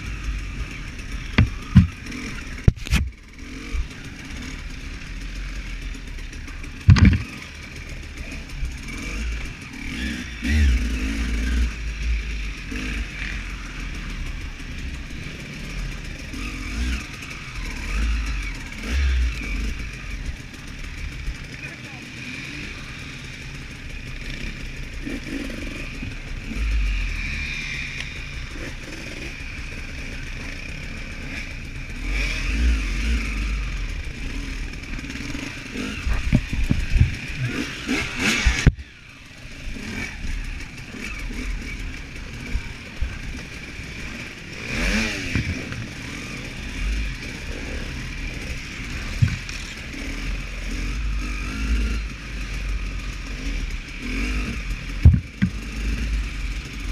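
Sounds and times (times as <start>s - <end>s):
motorcycle engine revving: 0.0s - 56.9s
clattering knocks: 6.9s - 7.3s.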